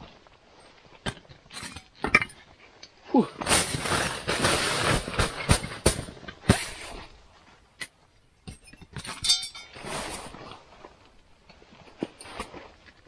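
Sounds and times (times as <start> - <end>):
rustling: 0.0 - 13.0
metallic clink and rattle: 8.4 - 9.9.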